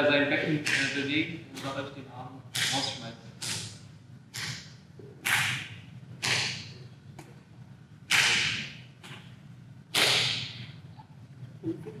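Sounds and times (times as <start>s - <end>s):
punches slapping on hands: 8.1s - 9.2s, 9.9s - 10.6s.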